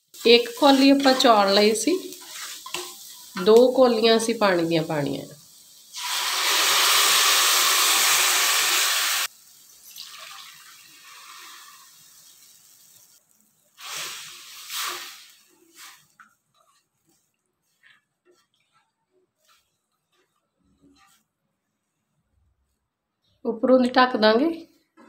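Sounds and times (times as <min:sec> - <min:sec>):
water sizzling in hot pan: 0:00.0 - 0:16.8
wooden spatula scraping pan: 0:00.4 - 0:03.2, 0:14.7 - 0:22.1.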